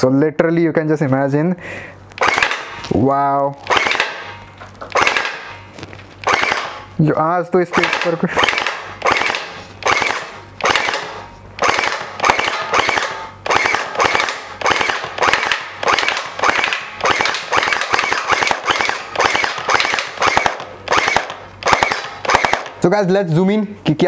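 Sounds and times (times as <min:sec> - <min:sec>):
gel blaster firing bursts: 0:02.2 - 0:02.9, 0:03.6 - 0:05.6, 0:06.2 - 0:07.0, 0:07.6 - 0:23.0.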